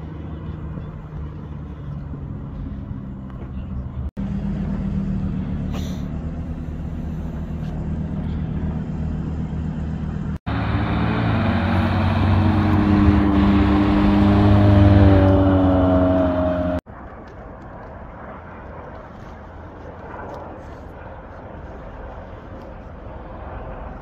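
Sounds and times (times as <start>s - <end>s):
sports car engines rumbling: 0.0s - 16.8s
sports car accelerating past: 10.5s - 16.8s.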